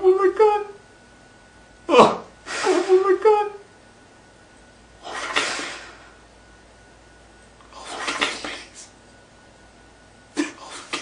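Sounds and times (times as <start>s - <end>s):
man sobbing: 1.9s - 3.6s.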